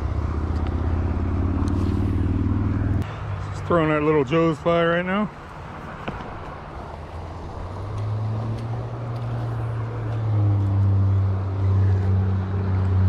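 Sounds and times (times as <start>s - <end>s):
low engine drone: 0.0s - 3.5s.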